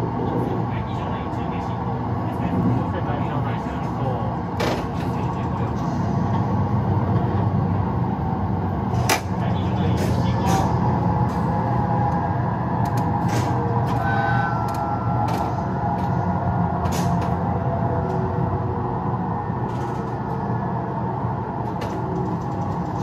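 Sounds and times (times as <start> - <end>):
electric train low hum: 0.0 - 23.0.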